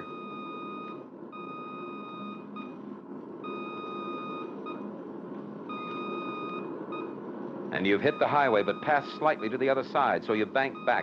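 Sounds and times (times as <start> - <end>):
low background noise: 0.0 - 11.0
beeping radio range tone: 7.8 - 11.0.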